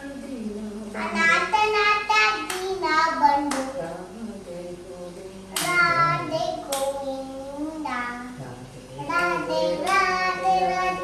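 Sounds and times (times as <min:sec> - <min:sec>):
girl singing a prayer chant: 0:00.0 - 0:11.0
hands clapping: 0:02.5 - 0:02.7, 0:03.5 - 0:03.7, 0:05.6 - 0:05.8, 0:09.2 - 0:10.1.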